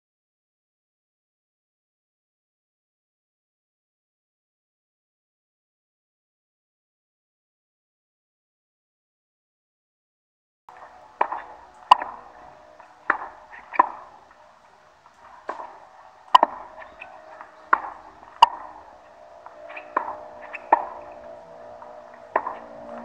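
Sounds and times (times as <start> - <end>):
tennis racket hitting ball: 11.1 - 14.2, 15.4 - 23.0.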